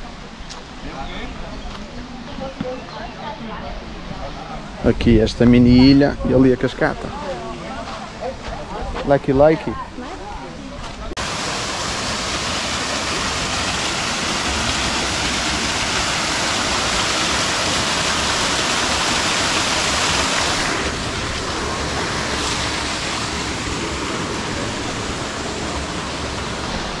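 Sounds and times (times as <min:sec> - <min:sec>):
waterfall rushing: 0:11.2 - 0:27.0.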